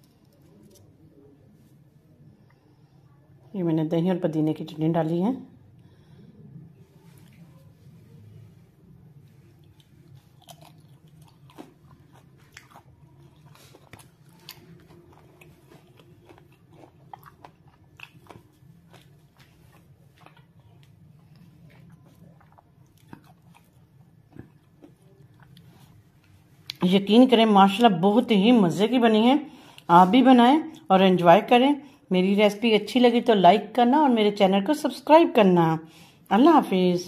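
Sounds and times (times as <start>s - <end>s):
low steady hum: 0.0s - 37.0s
person chewing crunchy food: 9.2s - 26.8s.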